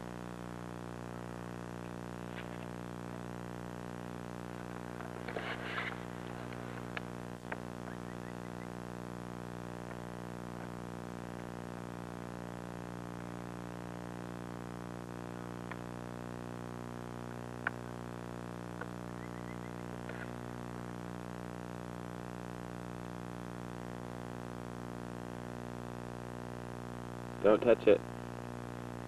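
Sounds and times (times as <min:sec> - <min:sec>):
steady low hum: 0:00.0 - 0:29.0
noisy rustle: 0:01.4 - 0:07.9.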